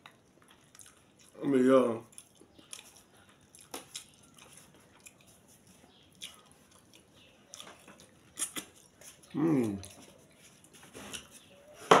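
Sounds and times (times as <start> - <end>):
man chewing: 0.0 - 1.4, 2.0 - 11.4.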